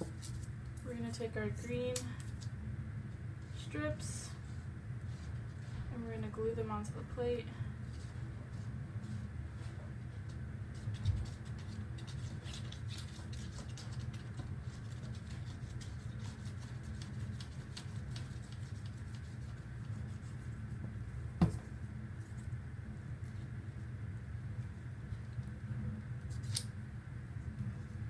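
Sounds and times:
steady low hum: 0.0s - 28.0s
glue stick scratching paper: 10.7s - 20.7s.

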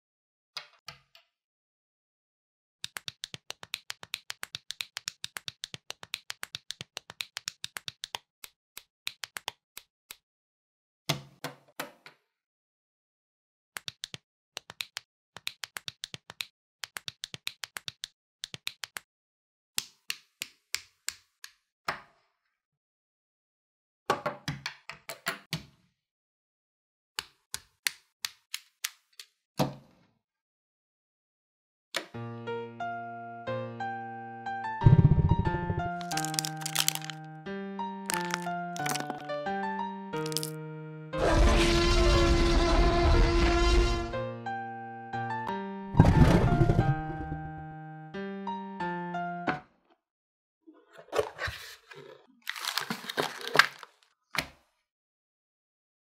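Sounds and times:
plastic bricks clicking together: 36.0s - 37.2s, 38.1s - 39.3s, 40.2s - 40.5s.

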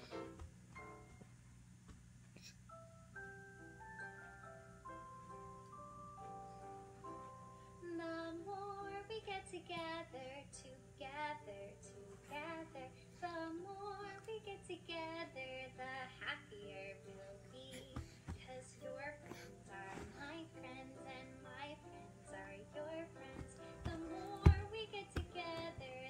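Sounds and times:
light music on phone speaker: 2.7s - 9.6s, 14.6s - 26.0s
woman singing with vibrato: 12.3s - 26.0s.

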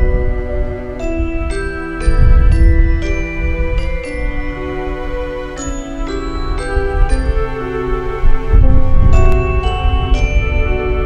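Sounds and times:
bell-like mallet percussion music: 0.0s - 8.3s, 8.9s - 11.0s
low rumbling noise: 0.0s - 11.0s.

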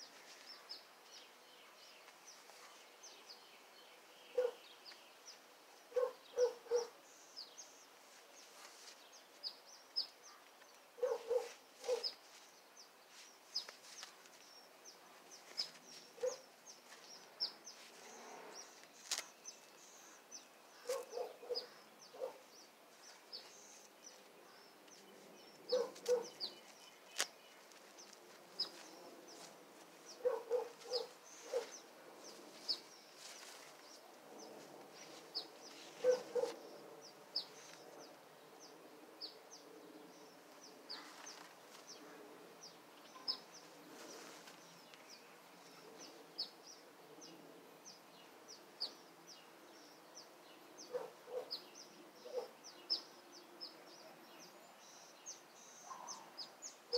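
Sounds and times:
small birds chirping: 0.0s - 56.9s
dog barking: 4.4s - 4.6s, 5.9s - 7.0s, 11.0s - 12.1s, 16.2s - 16.4s, 20.8s - 22.5s, 25.7s - 26.4s, 30.2s - 31.8s, 36.0s - 36.6s, 50.9s - 51.6s, 52.2s - 52.6s.

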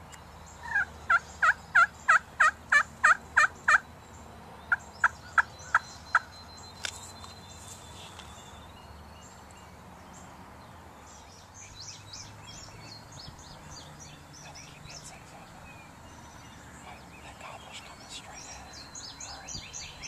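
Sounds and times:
small birds chirping: 0.0s - 20.0s
turkey calling: 0.6s - 3.9s, 4.7s - 6.4s.

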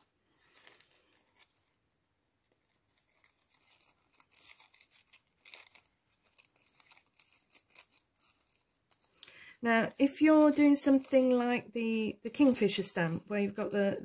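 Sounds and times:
paper rustling: 0.0s - 13.8s
scissors snipping paper: 2.5s - 9.2s, 10.0s - 13.2s.

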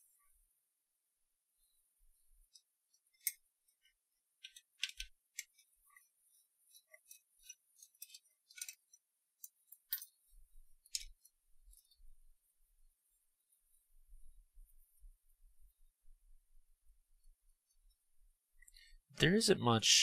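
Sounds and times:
small parts clicking while handled: 2.5s - 6.0s, 6.7s - 10.2s, 10.8s - 12.0s.

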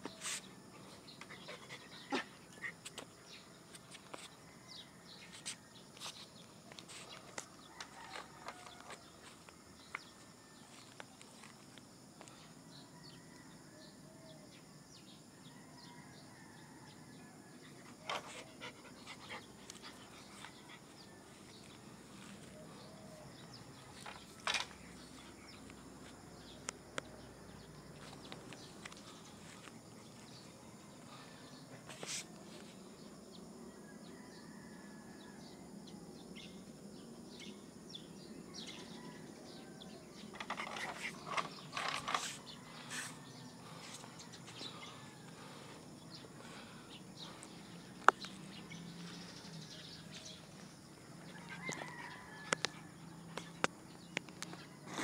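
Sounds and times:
dog panting: 18.0s - 21.5s.

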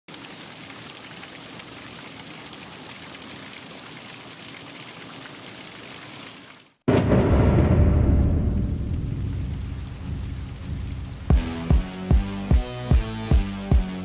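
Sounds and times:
steady rain falling: 0.1s - 6.8s, 8.6s - 12.5s.

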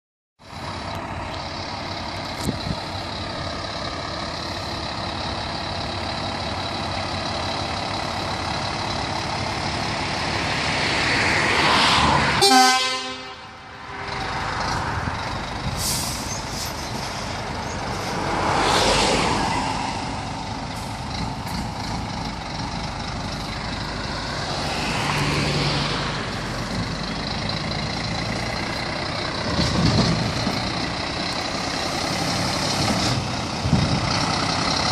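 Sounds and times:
diesel truck driving off: 0.4s - 34.9s.

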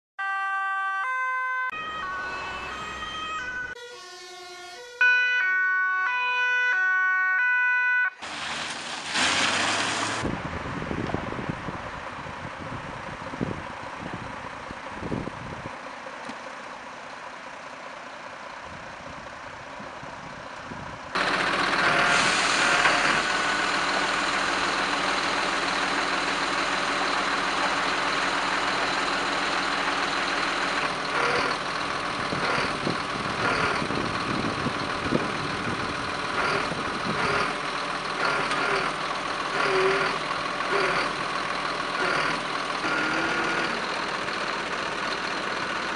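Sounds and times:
wind rumbling on microphone: 10.1s - 15.8s, 18.7s - 21.2s, 32.1s - 37.4s
heavy vehicle engine idling: 10.2s - 45.9s.

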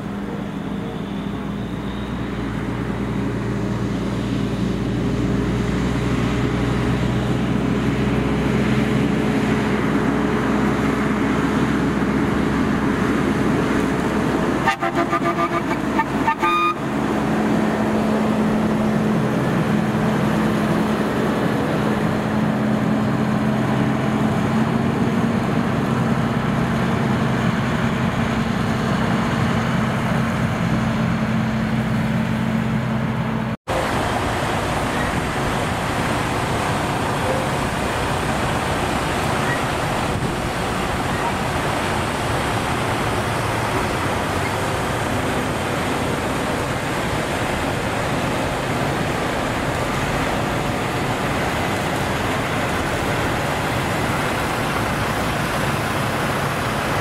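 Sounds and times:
diesel truck engine passing: 0.0s - 57.0s
truck horn blasts: 14.6s - 17.0s.

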